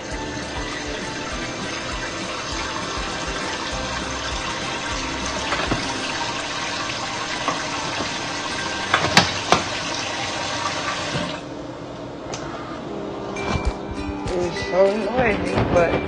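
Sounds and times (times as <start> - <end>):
water running from a tap: 0.0 - 11.5.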